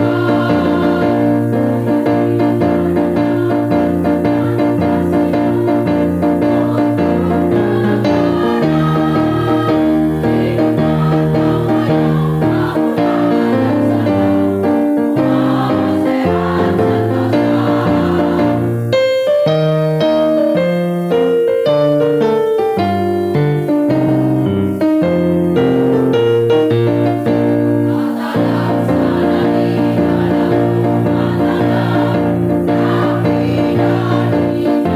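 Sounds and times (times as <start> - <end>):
women's choir singing: 0.0 - 20.0, 27.1 - 34.9
keyboard accompaniment: 0.0 - 34.9.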